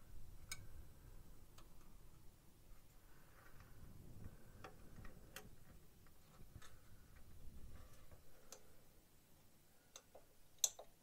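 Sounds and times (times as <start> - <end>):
tweezers clicking on plastic parts: 9.9 - 11.0.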